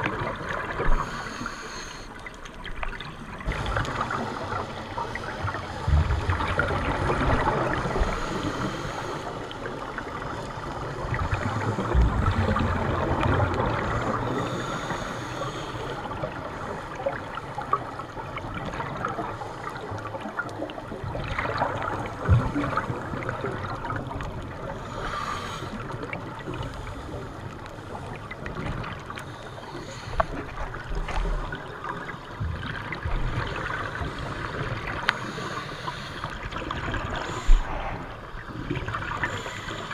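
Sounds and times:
underwater bubbles rushing and gurgling: 0.0 - 39.9.

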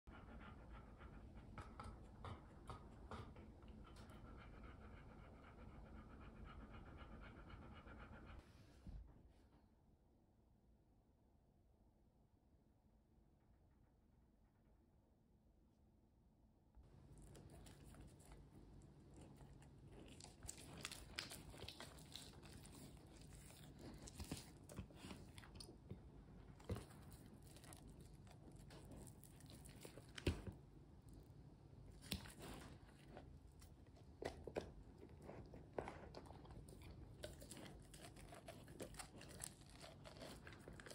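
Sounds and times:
dog panting rapidly: 0.1 - 8.4
dog crunching corn: 19.0 - 25.9, 34.1 - 40.9.

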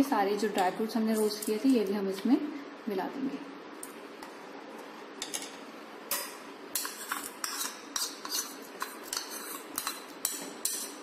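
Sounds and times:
spoon clinking and scraping in pot: 5.2 - 11.0.

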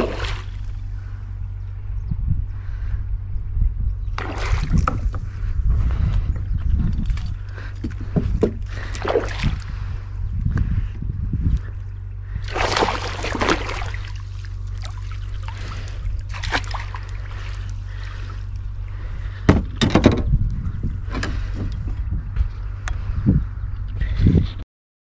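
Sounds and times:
fish splashing in water: 0.0 - 0.8, 4.2 - 5.1, 7.1 - 9.9, 12.4 - 18.6.

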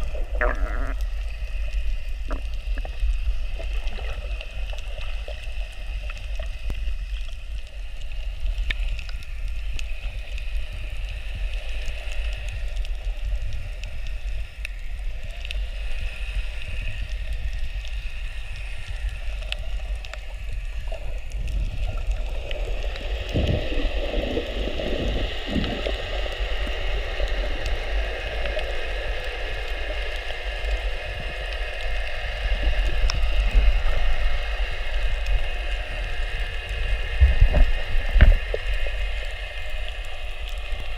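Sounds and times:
water gurgling and bubbling: 0.0 - 7.6, 19.2 - 30.0, 30.6 - 40.9
muffled underwater rumble: 0.0 - 40.9.

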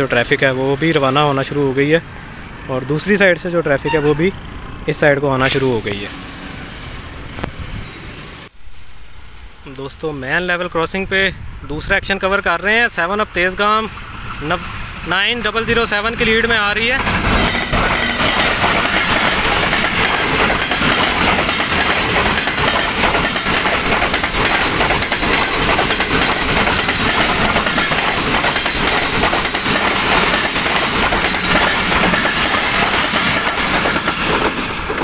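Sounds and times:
train passing at speed: 0.0 - 35.0
wheels clacking over rail joints: 16.2 - 35.0.

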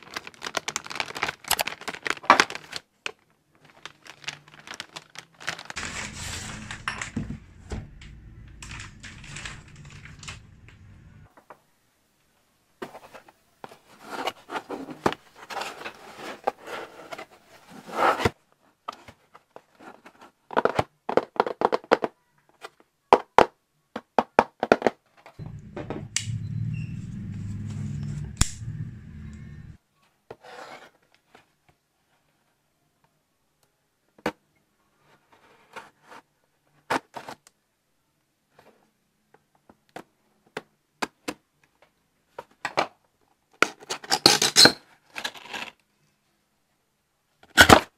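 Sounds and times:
packaging rustling and scraping: 0.0 - 11.3, 12.9 - 18.4
low hum: 5.8 - 11.3, 25.4 - 29.8.

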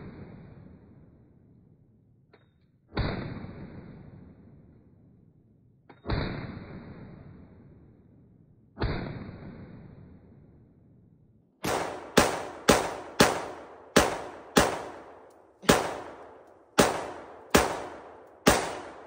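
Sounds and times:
gunshots with echo: 11.6 - 19.0.

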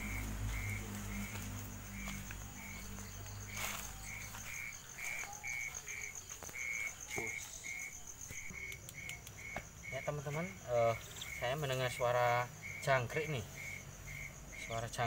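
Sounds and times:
low rumble: 0.0 - 4.2
crickets chirping: 0.0 - 15.0
high fast insect trill: 0.0 - 15.0.

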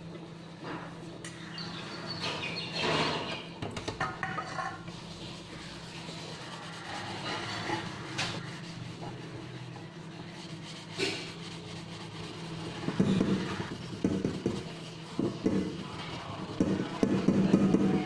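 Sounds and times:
sponge scrubbing a steel pot: 4.0 - 18.0.

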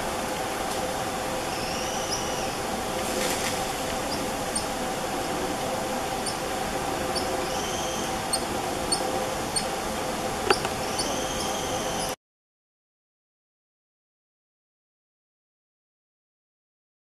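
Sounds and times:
forest hum: 0.0 - 12.2
monkey giving high-pitched calls: 6.2 - 6.4, 10.5 - 12.2.

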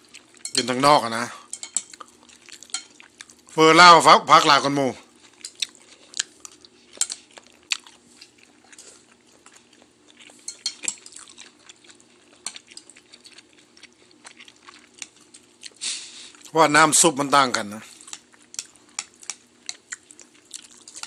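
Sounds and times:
chopsticks clinking against bowl: 0.3 - 0.8, 1.5 - 2.0, 2.6 - 3.0, 7.0 - 7.2, 10.4 - 11.4, 12.4 - 12.9
quiet chewing: 1.5 - 3.6, 5.1 - 16.5, 17.8 - 21.0.

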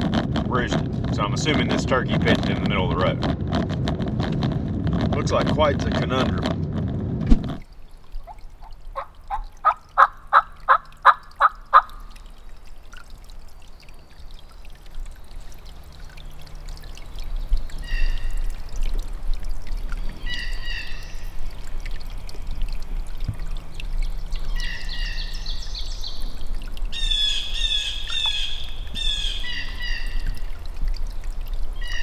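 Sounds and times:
water trickling: 0.0 - 32.0
turkey gobbles: 8.2 - 12.0.

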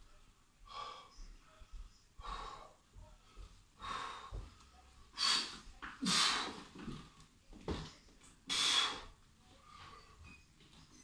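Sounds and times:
man breathing hard: 2.2 - 2.8, 3.4 - 4.5.

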